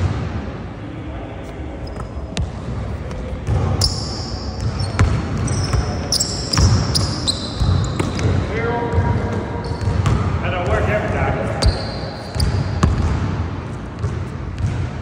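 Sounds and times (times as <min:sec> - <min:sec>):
sneaker squeaks: 0:01.4 - 0:10.3, 0:11.5 - 0:14.8
basketball bouncing on wooden floor: 0:04.6 - 0:10.8, 0:11.6 - 0:13.3, 0:14.0 - 0:15.0.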